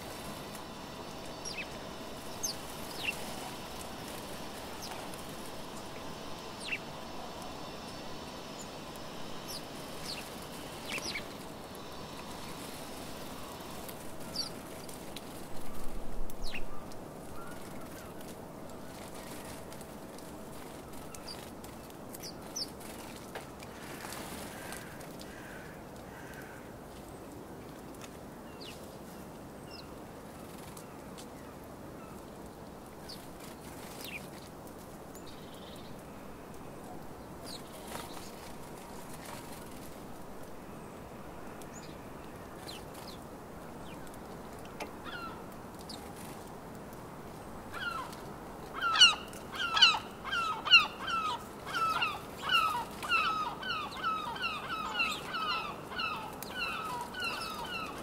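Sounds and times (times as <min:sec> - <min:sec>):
background noise: 0:00.0 - 0:58.0
faint sparrow chirps: 0:01.2 - 0:03.7, 0:05.8 - 0:11.4
gull yelping calls: 0:48.8 - 0:58.0.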